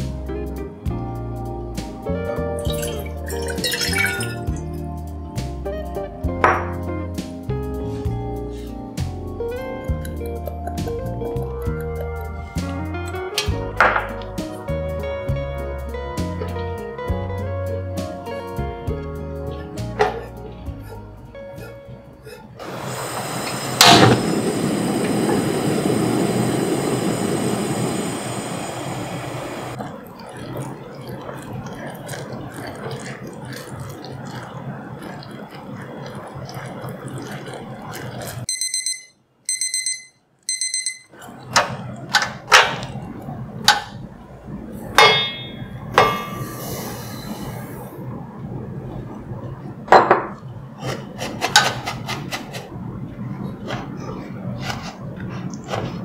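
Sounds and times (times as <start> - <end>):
gas burner rushing hiss: 22.6 - 29.8, 46.0 - 48.1.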